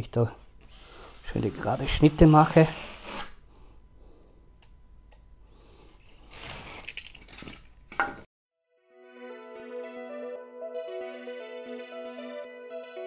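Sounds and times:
knife scraping through foam: 0.7 - 3.4.

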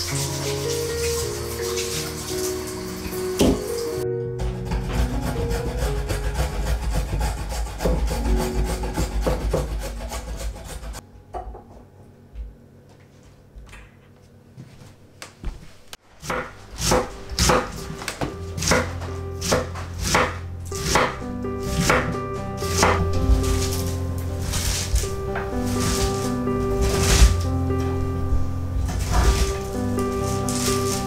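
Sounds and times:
drum grater shredding carrots: 4.4 - 11.0, 18.6 - 27.5, 28.8 - 31.0
knife slicing cabbage: 4.4 - 11.0, 16.2 - 27.5, 28.9 - 31.0.

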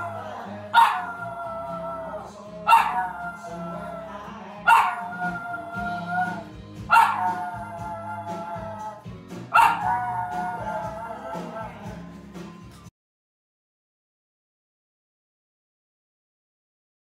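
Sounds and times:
dog howling: 0.0 - 12.0
music: 0.0 - 12.9.

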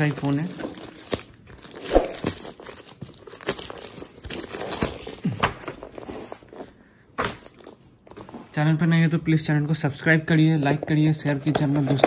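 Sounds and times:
plastic packaging crinkling: 0.0 - 5.2.

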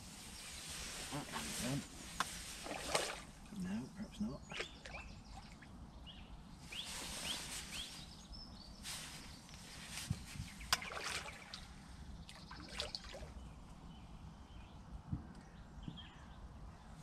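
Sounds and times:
birds chirping: 0.0 - 17.0
fish splashing at surface: 2.5 - 3.4, 10.7 - 11.7.

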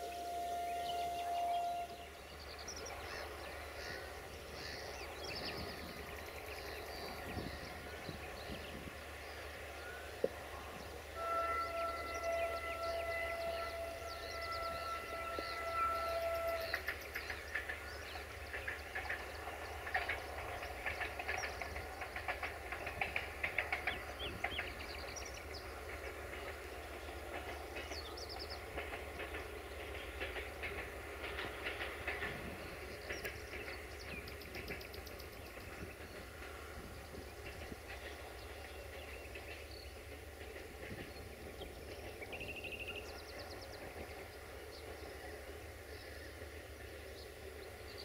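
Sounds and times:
train horn: 0.0 - 4.1, 9.7 - 17.0
train wheels clacking over rail joints: 2.6 - 48.0.

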